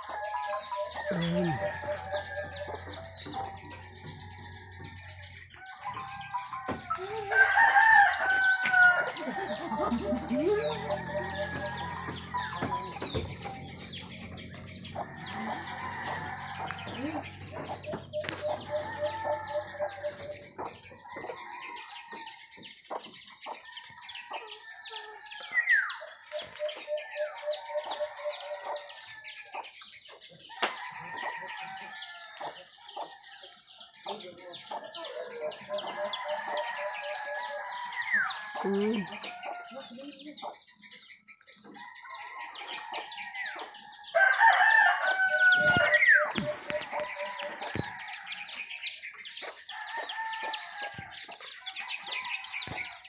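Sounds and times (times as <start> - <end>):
rooster crowing: 0.0 - 22.4, 35.5 - 39.8, 41.8 - 48.7, 49.7 - 53.0
chickens clucking: 0.0 - 53.0.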